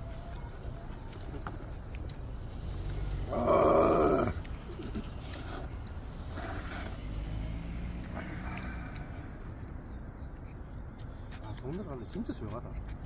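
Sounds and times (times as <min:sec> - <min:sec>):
people slurping noodles: 0:02.7 - 0:07.0.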